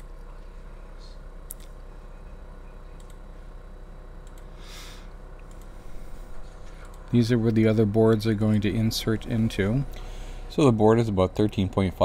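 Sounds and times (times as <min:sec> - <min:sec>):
low electrical hum: 0:00.0 - 0:12.0
computer mouse clicks: 0:03.0 - 0:03.2, 0:04.2 - 0:04.5, 0:05.4 - 0:05.8.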